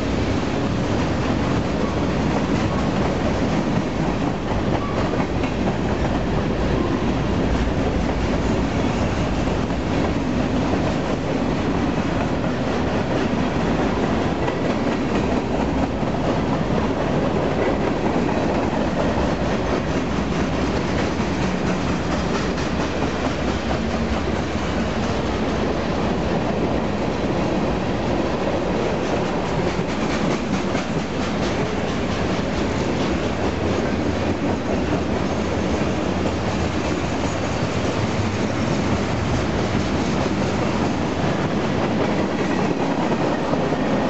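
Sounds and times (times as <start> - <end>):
freight train wheels on rail: 0.0 - 44.0.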